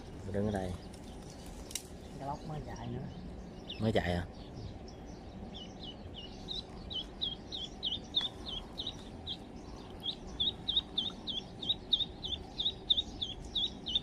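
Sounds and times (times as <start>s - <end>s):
duckling peeping: 0.0s - 14.0s.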